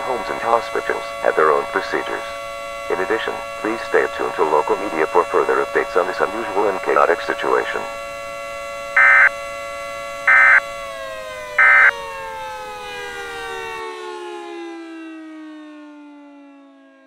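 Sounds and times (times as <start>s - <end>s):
siren winding down: 0.0s - 17.0s
data tone bursts: 8.9s - 9.3s, 10.3s - 10.6s, 11.6s - 11.9s.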